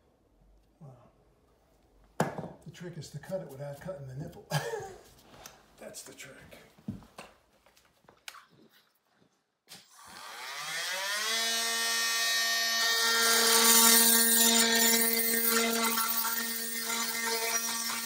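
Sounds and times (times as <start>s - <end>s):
power tool cutting metal: 9.8s - 18.0s.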